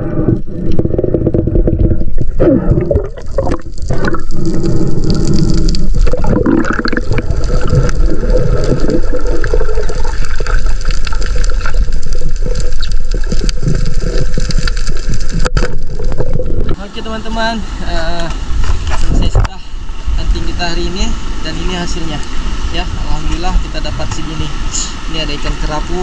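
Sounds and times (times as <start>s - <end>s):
water gurgling underwater: 0.0s - 16.8s.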